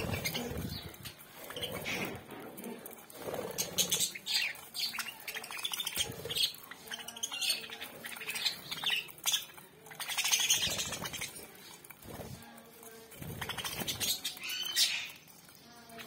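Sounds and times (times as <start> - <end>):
budgerigars chattering: 0.0 - 2.3, 3.3 - 11.4.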